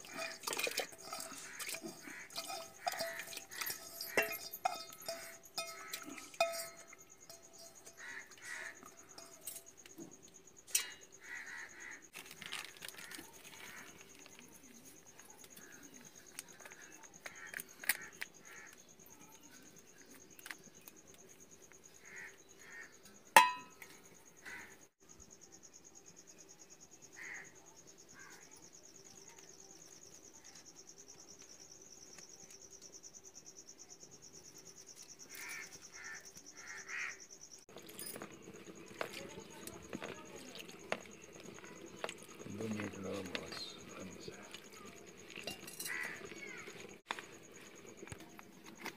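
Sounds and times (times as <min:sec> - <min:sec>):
metal cooking vessels clinking: 0:00.0 - 0:09.8, 0:10.7 - 0:11.2, 0:23.4 - 0:24.0, 0:37.7 - 0:47.0
insects chirping: 0:00.0 - 0:48.9
sharp metallic clank: 0:23.4 - 0:23.9.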